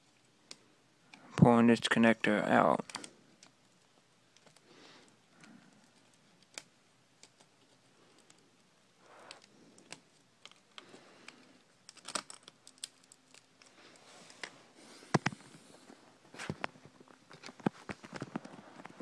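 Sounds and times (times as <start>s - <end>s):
wire being handled: 2.6s - 19.0s
plastic laptop parts clicking: 2.8s - 4.6s, 5.4s - 8.4s, 9.3s - 13.7s.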